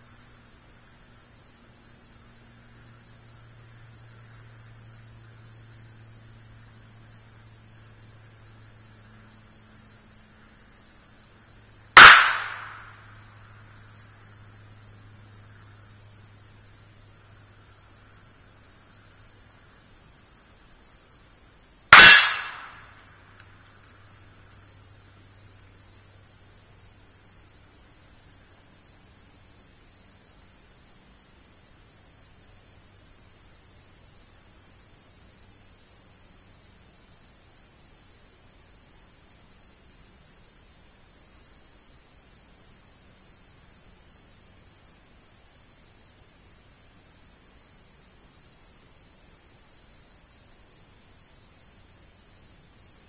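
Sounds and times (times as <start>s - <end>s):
pistol shots with echo: 12.0s - 12.9s, 22.0s - 22.8s.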